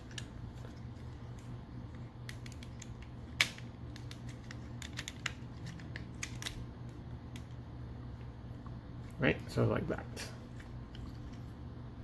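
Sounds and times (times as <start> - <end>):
steady low hum: 0.0 - 12.0
plastic toy parts clicking: 2.3 - 6.6.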